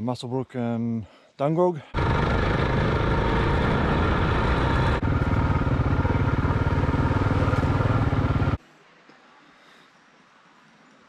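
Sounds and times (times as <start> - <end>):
motorcycle engine running: 2.0 - 8.6.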